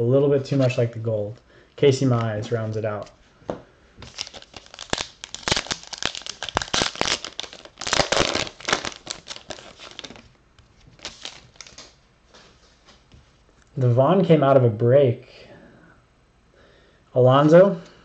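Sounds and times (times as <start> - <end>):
wrapper tearing and crinkling: 4.0 - 12.0.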